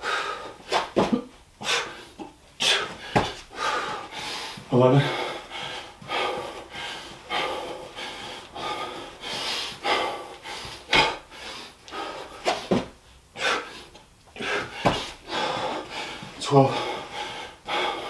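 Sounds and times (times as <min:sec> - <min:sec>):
man panting hard: 0:00.0 - 0:18.0
dull thumps on floor: 0:03.1 - 0:03.4, 0:12.5 - 0:13.0, 0:14.8 - 0:15.1.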